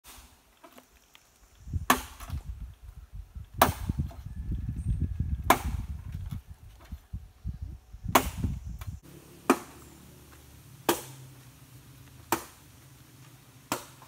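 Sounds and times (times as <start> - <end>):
machete chopping bamboo: 1.8 - 2.4, 3.6 - 4.1, 5.5 - 5.9, 8.1 - 8.6, 9.4 - 9.8, 10.8 - 11.3, 12.3 - 12.6, 13.7 - 14.0.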